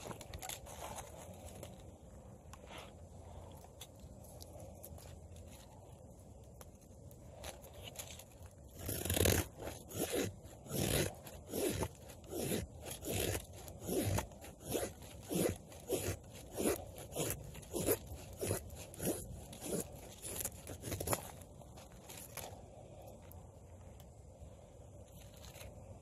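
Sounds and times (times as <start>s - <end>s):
knife scraping wooden stick: 7.3s - 22.6s.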